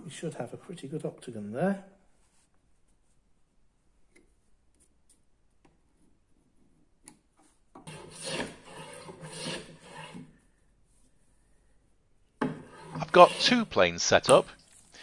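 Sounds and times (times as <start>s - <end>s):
hand plane rasping on wood: 7.9s - 10.3s, 12.5s - 13.7s.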